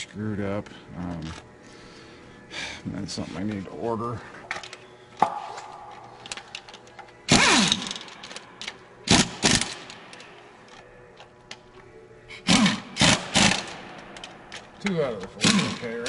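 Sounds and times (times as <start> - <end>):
cordless power driver bursts: 7.3 - 8.0.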